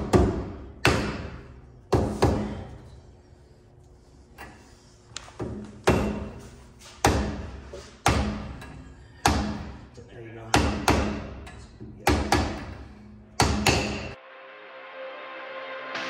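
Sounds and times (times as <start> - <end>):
mallet knocking on metal: 10.5 - 12.8, 13.4 - 14.2.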